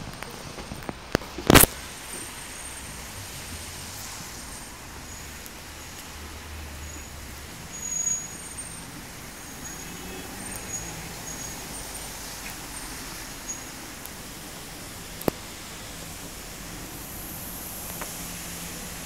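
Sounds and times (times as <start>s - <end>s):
road traffic rumble: 0.0s - 19.0s.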